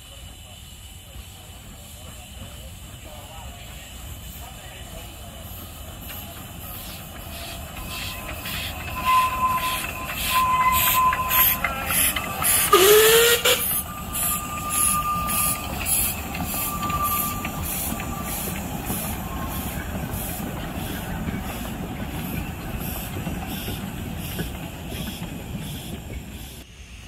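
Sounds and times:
steam hiss: 0.0 - 27.0
steam locomotive exhaust chuffs: 0.0 - 27.0
wheels squealing on curve: 6.1 - 26.6.

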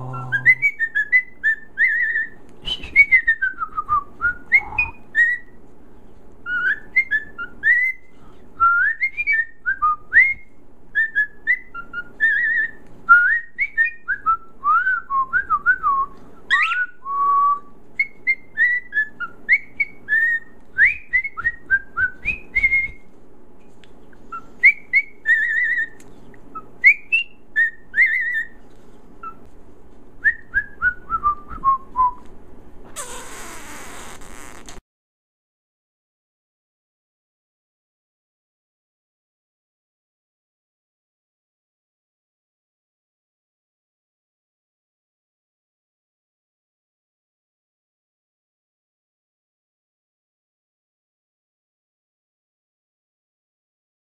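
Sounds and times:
cockatiel whistling: 0.0 - 5.6, 6.4 - 8.0, 8.7 - 15.5, 16.5 - 23.0, 24.3 - 28.6.

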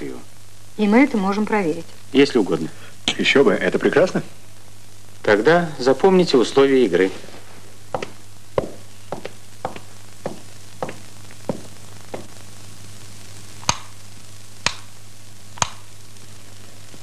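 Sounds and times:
steady low hum: 0.0 - 17.0
footsteps on hard floor: 7.2 - 12.4.

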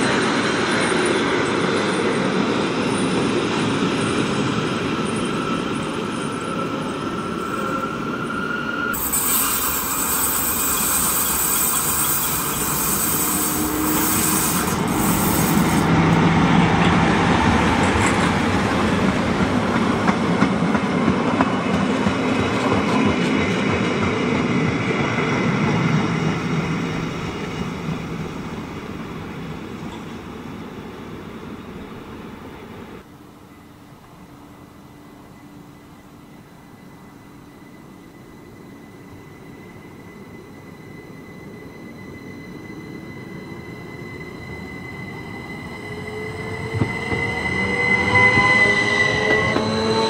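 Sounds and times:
train wheels rumbling on rails: 0.0 - 33.1, 38.1 - 50.0
high wheel squeal: 4.8 - 16.2, 36.3 - 50.0.

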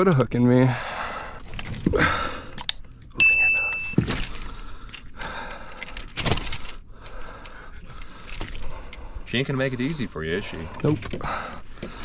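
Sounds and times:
short steady beep: 3.2 - 4.0.

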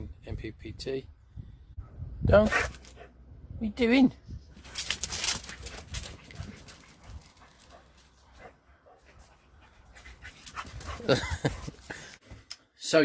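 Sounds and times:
dog panting: 5.6 - 12.0.

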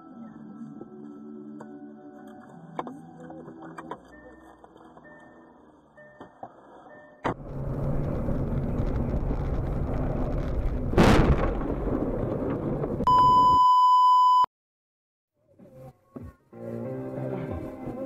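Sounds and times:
violent crash impact: 7.4 - 13.1
loud high beep: 13.1 - 14.5.

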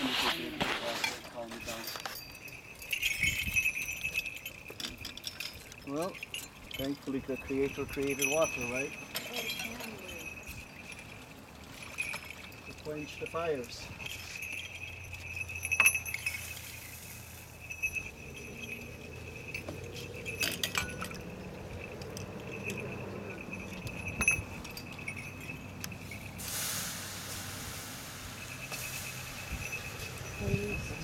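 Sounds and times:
sharp metallic clinks: 1.0 - 31.0
hiss of water quenching fire: 26.3 - 29.9.

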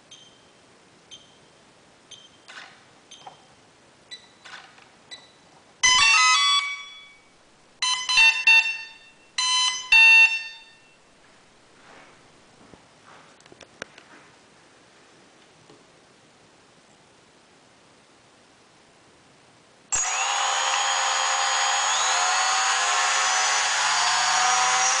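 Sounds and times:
faint short beeps: 0.1 - 2.5.

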